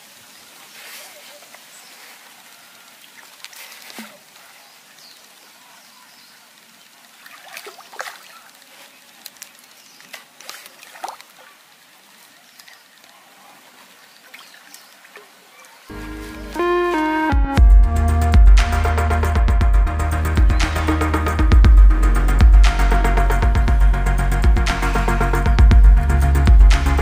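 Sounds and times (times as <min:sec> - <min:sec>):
faint outdoor hiss: 0:00.0 - 0:27.0
fish splashing in water: 0:00.8 - 0:05.4, 0:07.0 - 0:15.9.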